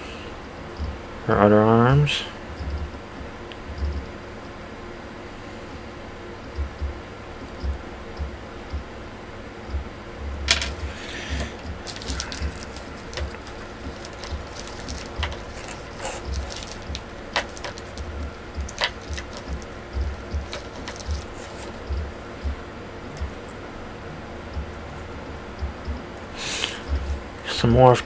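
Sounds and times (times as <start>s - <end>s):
plastic parts clicking and rustling: 10.5s - 22.0s.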